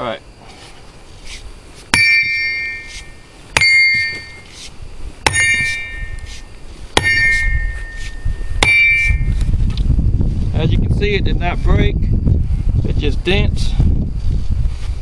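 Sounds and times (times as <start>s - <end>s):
sledgehammer clanging on steel: 1.9s - 4.6s, 5.2s - 9.4s.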